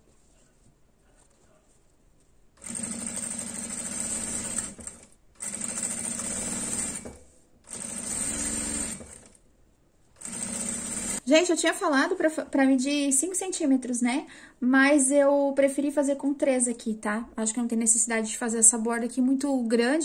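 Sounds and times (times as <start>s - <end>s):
sewing machine stitching: 2.6s - 9.4s, 10.2s - 11.2s.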